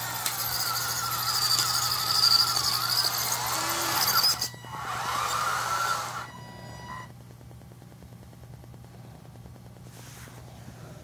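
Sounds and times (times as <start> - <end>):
small gear motors whining: 0.0 - 7.1.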